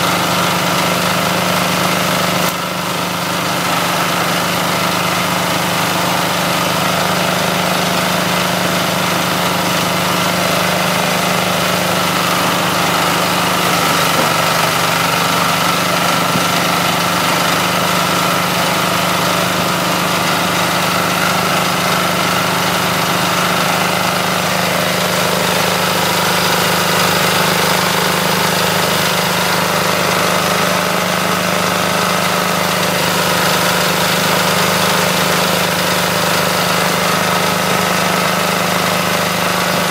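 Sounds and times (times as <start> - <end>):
small engine running steadily: 0.0 - 39.9.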